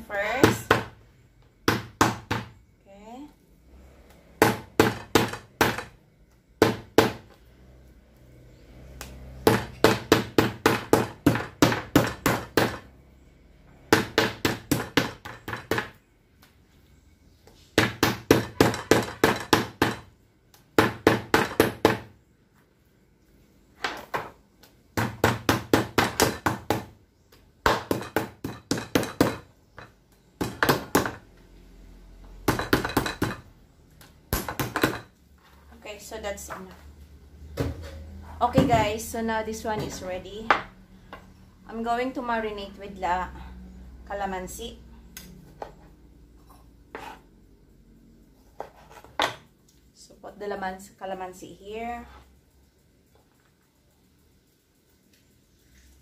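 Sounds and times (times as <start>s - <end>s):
meat mallet pounding meat: 9.4s - 12.8s, 25.0s - 26.9s, 27.6s - 29.5s, 30.4s - 31.2s.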